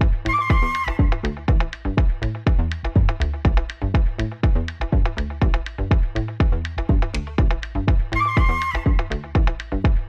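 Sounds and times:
electronic dance music: 7.4s - 10.0s.

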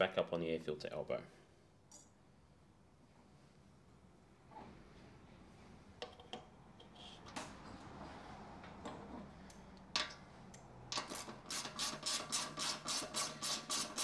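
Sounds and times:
faint metal clicks and knocks: 6.0s - 7.6s.

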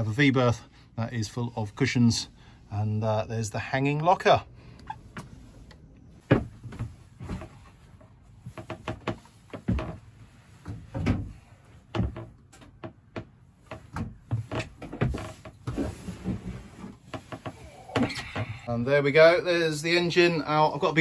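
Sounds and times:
wooden knocks and thuds: 6.2s - 18.6s.

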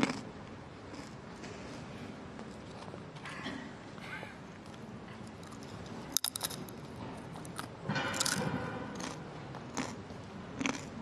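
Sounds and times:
chewing crunches: 0.0s - 0.3s, 0.9s - 1.8s, 4.6s - 11.0s
potato chip snapping: 6.2s - 6.6s.

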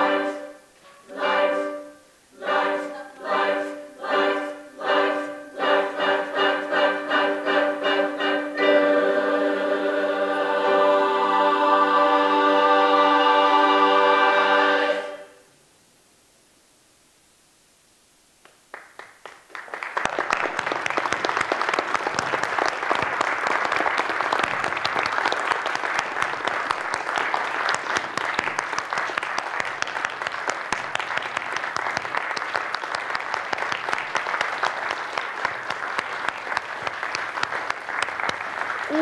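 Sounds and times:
crowd applause: 18.7s - 39.0s.

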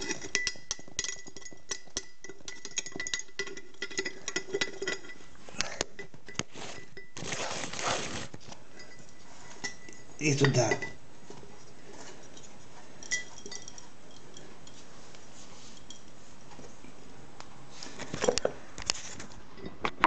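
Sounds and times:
glass jar clinking: 0.0s - 7.4s, 8.7s - 11.0s, 12.1s - 14.8s, 19.5s - 20.0s.

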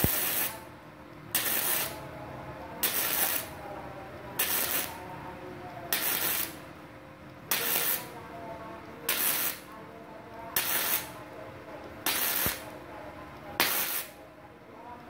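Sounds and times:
welding arc crackling: 0.0s - 0.7s, 1.3s - 2.0s, 2.8s - 3.6s, 4.4s - 5.0s, 5.9s - 6.6s, 7.5s - 8.2s, 9.1s - 9.7s, 10.6s - 11.2s, 12.0s - 12.8s, 13.6s - 14.2s.

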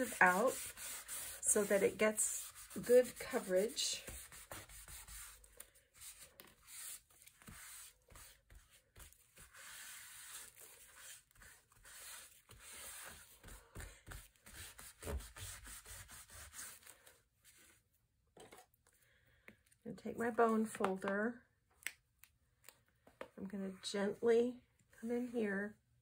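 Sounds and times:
paper towel rubbing cardstock: 0.0s - 17.0s.

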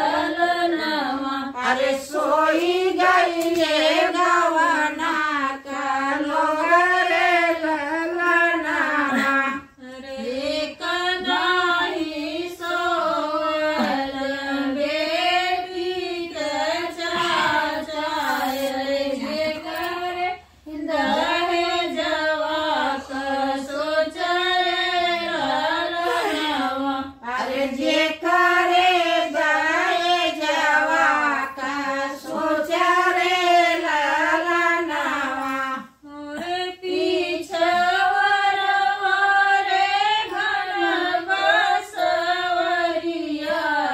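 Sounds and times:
women singing unaccompanied folk song: 0.0s - 43.9s.

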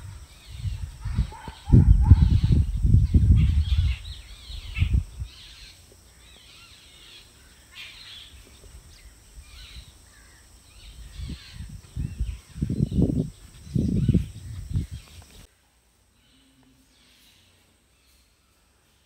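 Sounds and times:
low rumbling on microphone: 0.0s - 5.4s, 10.9s - 15.5s
small birds chirping: 0.0s - 15.5s.

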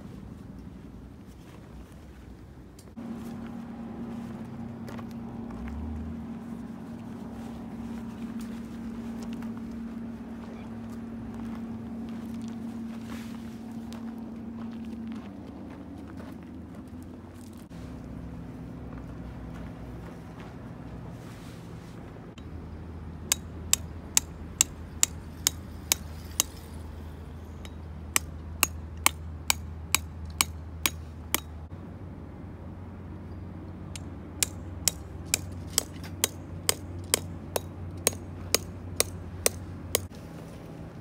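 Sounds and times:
hammer striking tent pegs: 34.0s - 40.1s.

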